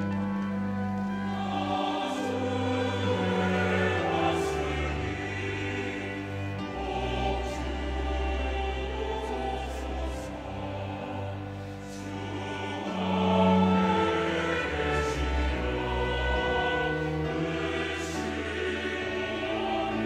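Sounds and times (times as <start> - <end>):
choir singing a hymn: 0.0 - 20.0
piano: 0.0 - 20.0
string ensemble: 0.0 - 20.0.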